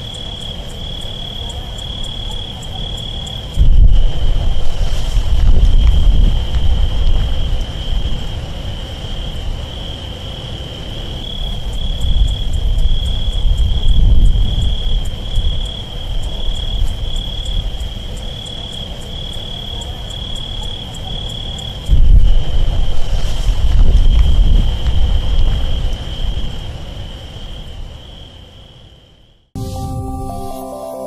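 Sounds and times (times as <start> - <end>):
crickets trilling: 0.0 - 29.4
deep continuous rumble: 1.5 - 18.2, 21.7 - 27.9.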